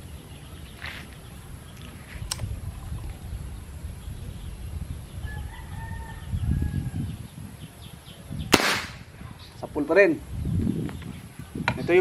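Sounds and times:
rooster crowing faintly: 5.2s - 7.1s
air rifle shot: 8.5s - 9.1s.

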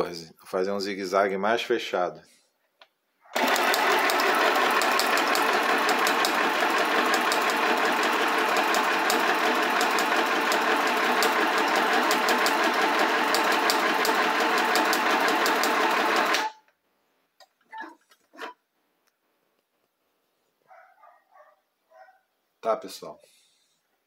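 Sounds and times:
sewing machine running: 3.4s - 16.6s.

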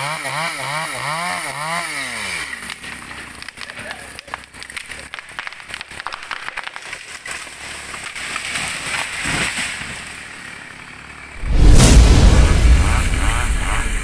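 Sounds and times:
wood cracking: 2.5s - 10.2s
tree crashing to ground: 2.7s - 10.4s
rush of branches and leaves: 5.8s - 10.4s, 11.2s - 14.0s.

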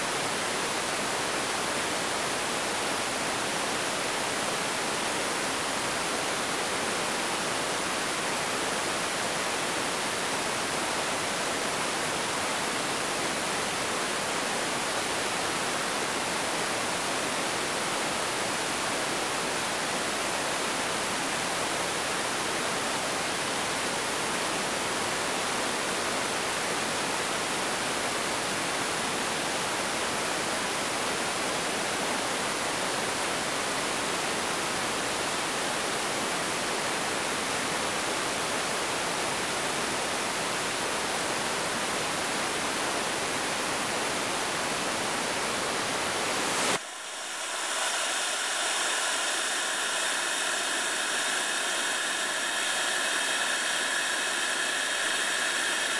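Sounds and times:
thin hiss with whistling tones: 6.9s - 55.9s
rocket engine exhaust roar: 46.8s - 55.9s.

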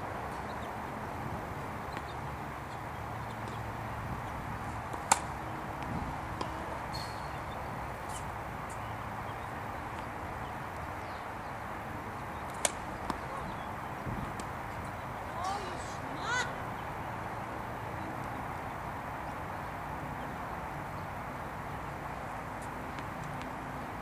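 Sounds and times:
steady background hiss: 0.0s - 24.0s
tennis racket striking ball: 4.9s - 7.3s, 12.5s - 13.4s.

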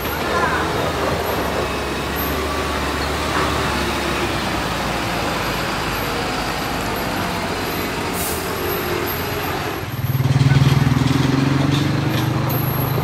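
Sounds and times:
diesel truck engine running: 0.0s - 13.0s
road traffic: 0.0s - 13.0s.

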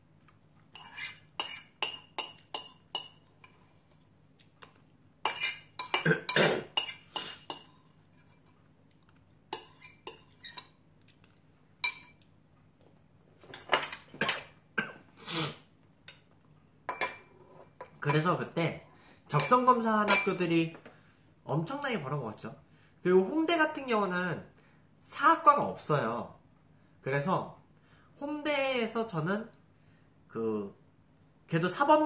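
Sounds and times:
metal spoon clinking ceramic bowl: 0.8s - 3.6s, 5.3s - 6.0s, 6.8s - 8.5s, 9.5s - 10.8s, 11.8s - 12.2s, 16.9s - 18.0s, 19.4s - 20.4s.

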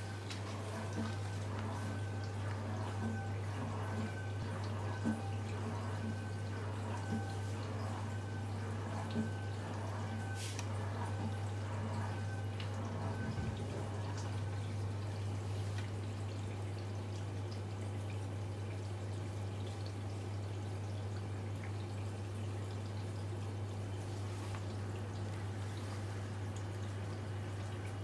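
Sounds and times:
dishwasher humming: 0.0s - 28.0s.

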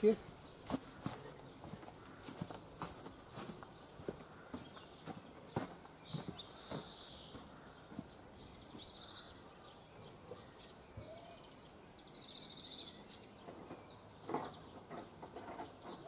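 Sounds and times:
small birds chirping and trilling: 0.0s - 16.0s.

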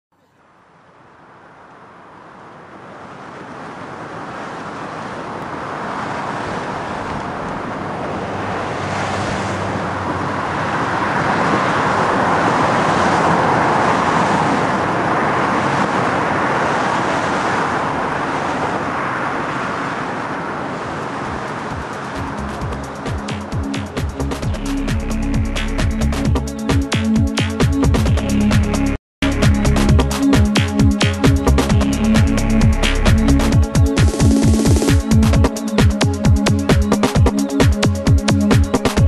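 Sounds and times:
highway traffic noise: 0.2s - 39.0s.

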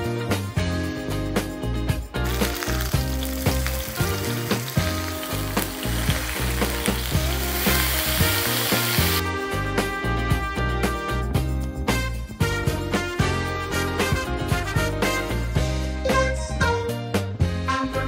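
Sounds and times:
background music with beat: 0.0s - 18.0s
steaks sizzling on griddle: 2.2s - 9.2s.

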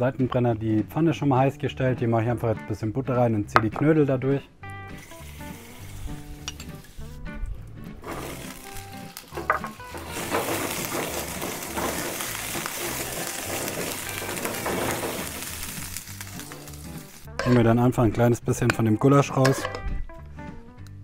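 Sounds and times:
background music with bass: 0.0s - 21.0s
butter sizzling in a frying pan: 4.9s - 7.1s, 8.0s - 17.4s.

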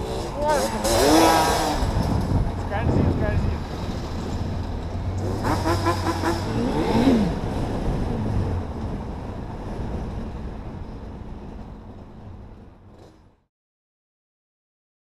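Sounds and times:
quad bike engine revving: 0.0s - 8.7s.

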